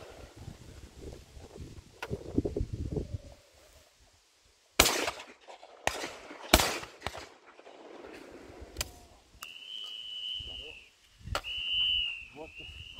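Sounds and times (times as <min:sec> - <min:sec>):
loud shotgun shots with echo: 0:04.8 - 0:08.1.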